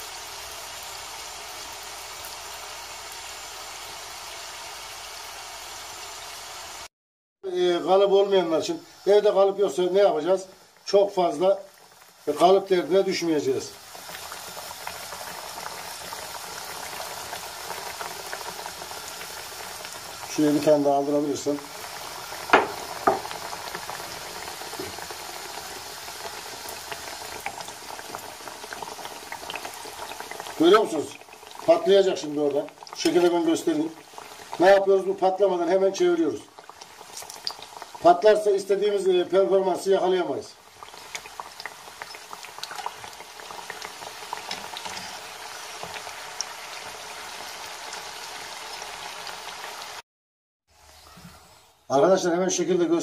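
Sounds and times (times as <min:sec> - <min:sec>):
dough sizzling in hot oil: 0:00.0 - 0:06.9, 0:07.7 - 0:50.0
short knock: 0:22.6 - 0:23.3.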